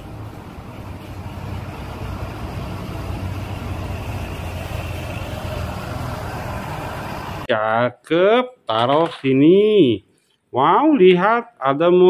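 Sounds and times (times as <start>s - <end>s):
bus diesel engine drone: 0.0s - 7.5s.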